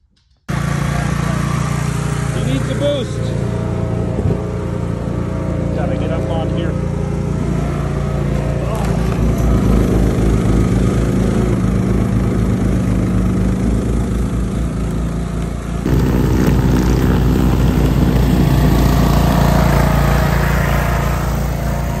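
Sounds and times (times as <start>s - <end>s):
garden tractor engine running: 0.5s - 22.0s
snowblower throwing snow: 15.8s - 22.0s.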